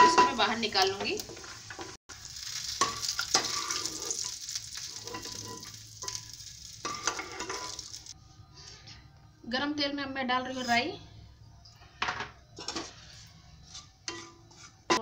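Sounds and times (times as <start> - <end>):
hot oil sizzling: 0.0 - 8.2
spoon scraping a pan: 2.8 - 8.8, 11.8 - 15.0.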